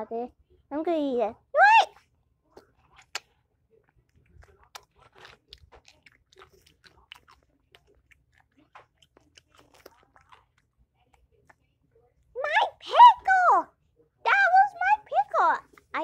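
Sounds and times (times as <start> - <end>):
dog chewing with wet crunches: 2.5 - 11.7.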